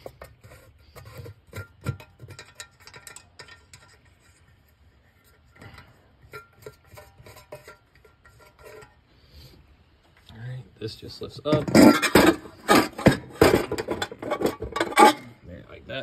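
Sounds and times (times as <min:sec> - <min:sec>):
metallic clicks and scrapes: 0:00.0 - 0:09.1, 0:11.5 - 0:15.3.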